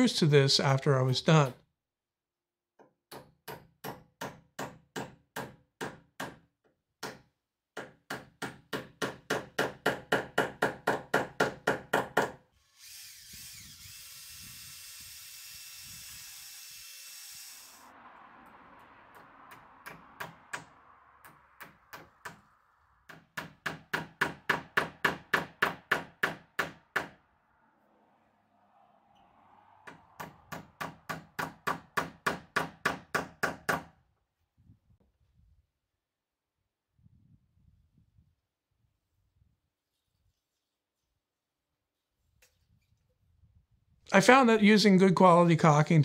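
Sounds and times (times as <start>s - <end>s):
hammer driving nails into wood: 2.8s - 12.4s, 23.1s - 27.2s, 29.9s - 34.0s
cordless drill drilling: 12.6s - 17.9s.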